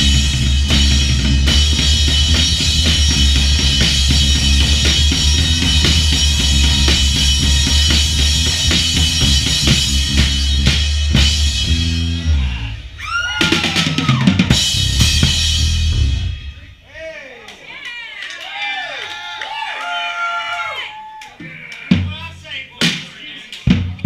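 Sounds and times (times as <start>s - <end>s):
drum kit solo: 0.0s - 17.1s, 21.4s - 24.0s.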